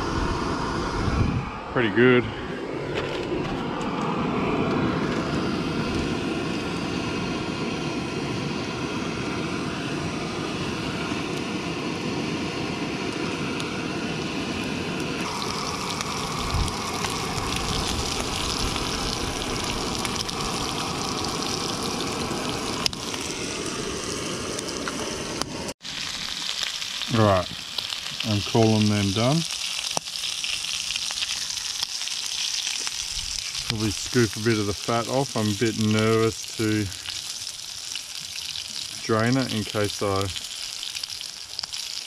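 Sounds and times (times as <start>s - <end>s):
food sizzling in oil: 15.1s - 42.0s.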